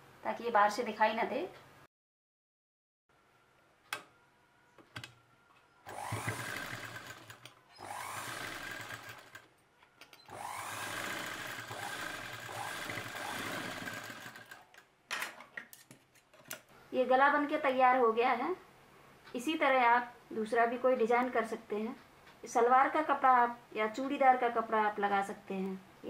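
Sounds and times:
sewing machine stitching: 5.9s - 9.5s, 10.2s - 14.7s.

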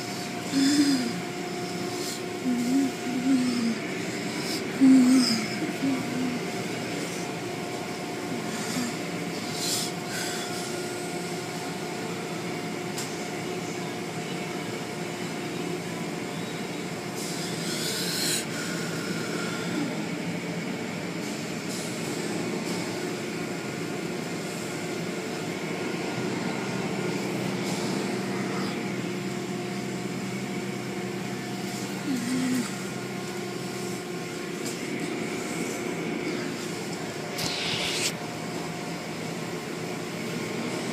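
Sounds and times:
car wash machinery hum: 0.0s - 40.9s
deeper hum: 37.2s - 38.4s
short hissing bursts: 37.4s - 38.2s.

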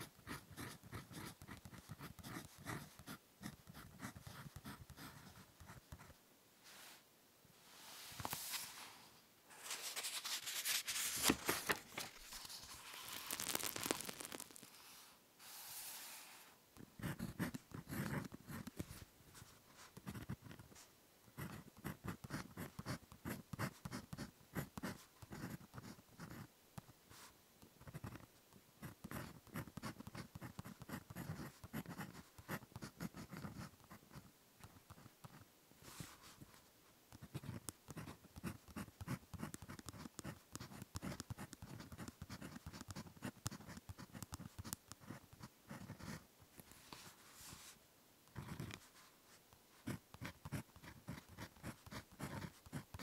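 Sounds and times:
ballpoint pen writing on paper: 0.0s - 6.1s, 16.9s - 18.8s, 21.4s - 26.5s, 28.8s - 34.2s, 37.2s - 46.2s, 49.8s - 53.0s.

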